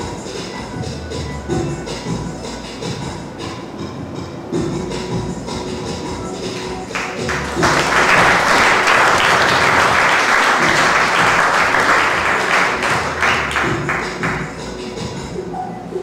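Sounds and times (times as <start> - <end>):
background music: 0.0 - 16.0
audience applauding: 6.6 - 14.6.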